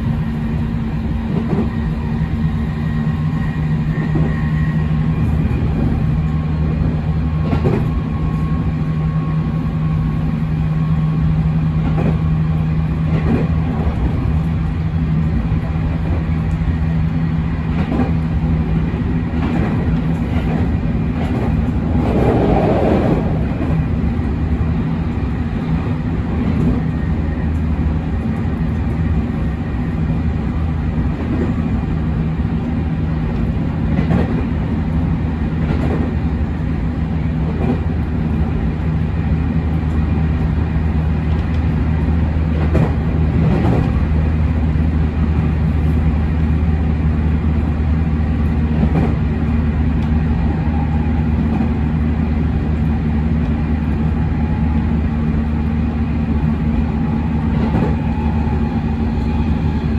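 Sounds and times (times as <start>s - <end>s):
train wheels rumbling on rail: 0.0s - 59.9s
clacks over rail joints: 7.4s - 8.0s, 11.8s - 12.2s, 13.1s - 14.2s, 17.7s - 18.3s, 19.3s - 23.8s, 33.3s - 34.5s, 35.6s - 36.1s, 42.5s - 44.0s, 48.8s - 49.2s, 57.5s - 58.1s.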